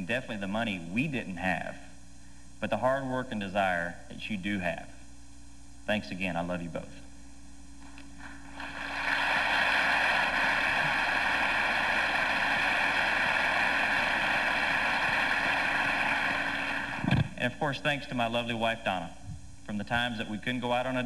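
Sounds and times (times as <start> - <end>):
large audience applauding: 8.2 - 17.0.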